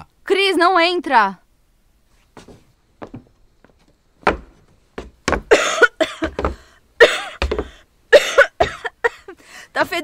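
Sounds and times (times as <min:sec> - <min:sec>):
person coughing harshly: 0:05.4 - 0:09.4.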